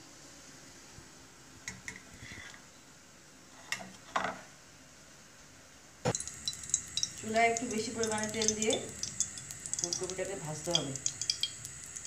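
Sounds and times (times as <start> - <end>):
wire strainer clinking against pot: 6.2 - 12.0.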